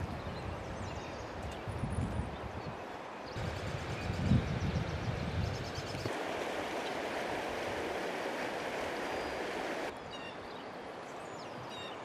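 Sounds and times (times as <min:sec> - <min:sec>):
floodwater rushing: 0:06.1 - 0:09.9.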